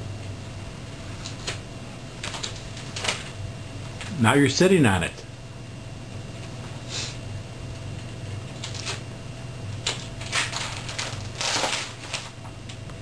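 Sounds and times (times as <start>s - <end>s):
magazine pages rustling: 9.8s - 12.3s.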